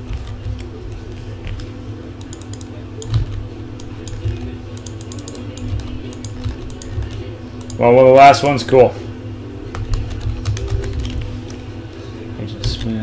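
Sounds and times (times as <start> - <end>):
keyboard typing clicks: 2.2 - 3.4, 4.0 - 7.8.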